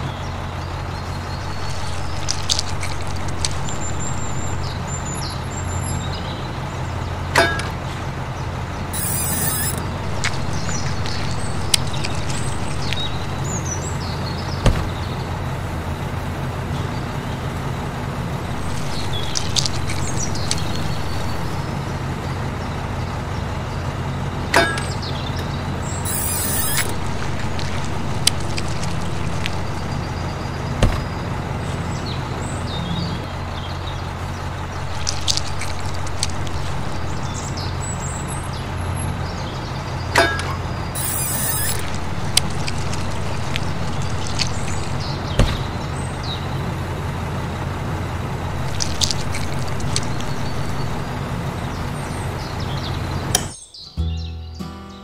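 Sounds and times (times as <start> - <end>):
short high chirps: 9.0 - 9.8, 26.1 - 27.2, 41.0 - 42.2
small electric motor humming: 9.0 - 11.5, 26.0 - 29.9, 41.0 - 44.4
sharp clicks: 26.1 - 30.0.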